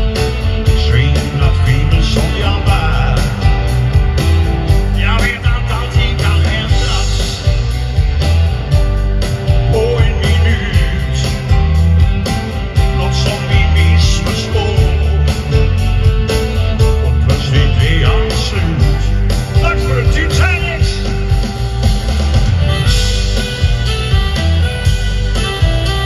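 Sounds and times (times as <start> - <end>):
drums steady beat: 0.0 - 26.0
electric guitar: 0.0 - 26.0
keyboards: 0.0 - 26.0
live band playing: 0.0 - 26.0.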